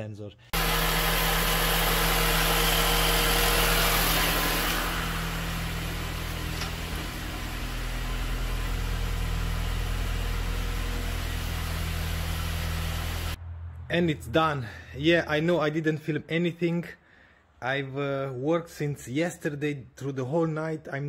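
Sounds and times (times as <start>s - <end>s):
car engine idling: 0.6s - 13.8s.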